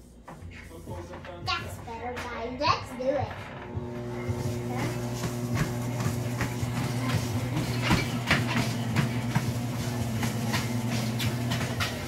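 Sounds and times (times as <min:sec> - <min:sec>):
treadmill humming: 0:00.2 - 0:12.0
child's footfalls on treadmill belt: 0:03.8 - 0:12.0.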